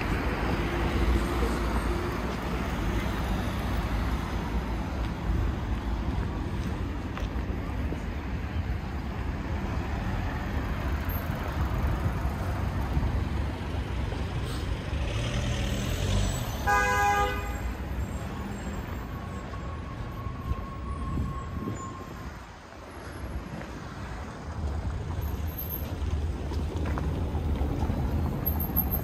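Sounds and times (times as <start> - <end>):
city traffic rumble: 0.0 - 29.0
car horn toot: 16.6 - 17.8.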